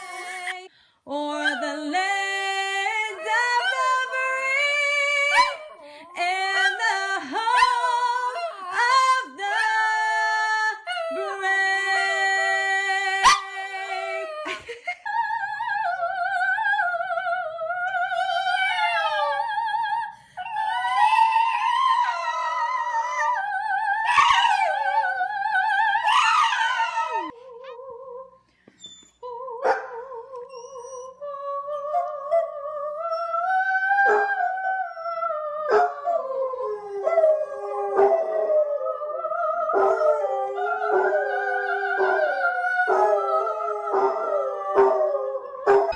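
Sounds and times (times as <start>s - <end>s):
dogs howling: 20.6s - 27.4s, 31.9s - 45.9s.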